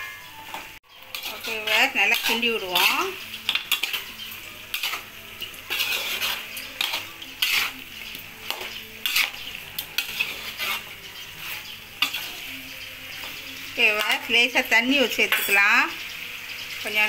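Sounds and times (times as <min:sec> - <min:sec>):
food sizzling in oil: 0:00.0 - 0:17.0
metal spoon scraping a pan: 0:00.4 - 0:17.0.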